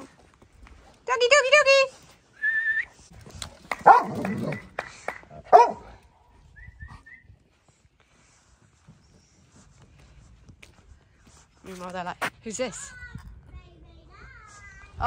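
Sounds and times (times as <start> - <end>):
dog barking: 3.8 - 4.4, 5.5 - 6.0.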